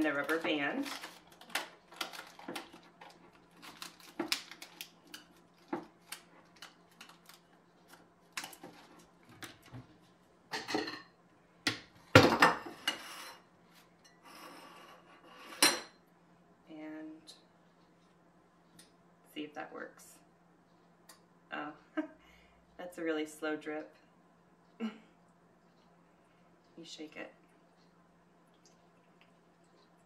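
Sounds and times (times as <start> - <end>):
paper filter crinkling: 0.0 - 9.7.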